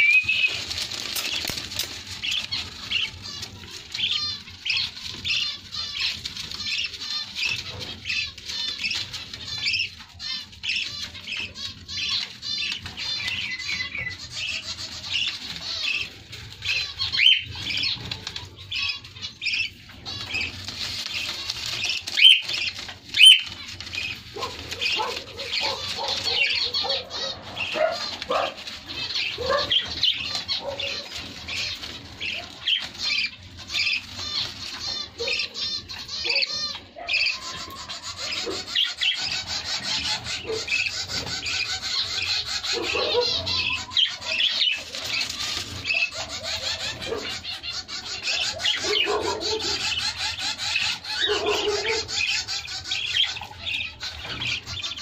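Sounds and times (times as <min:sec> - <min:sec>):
wing flutters: 0:00.0 - 0:10.4
bird chicks chirping: 0:00.0 - 0:55.0
lower bird calls: 0:00.0 - 0:55.0.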